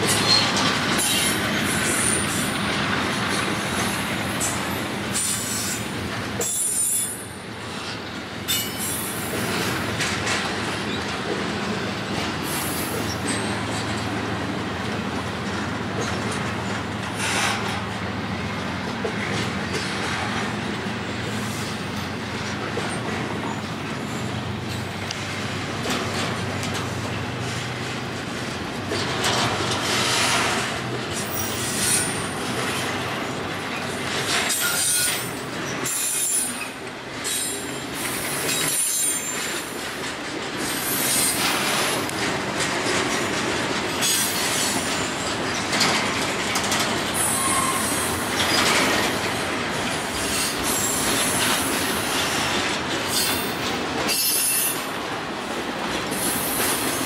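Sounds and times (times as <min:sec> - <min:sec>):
train wheels rumbling on rail: 0:00.0 - 0:57.0
high-pitched wheel squeals: 0:34.5 - 0:36.8, 0:47.2 - 0:48.5.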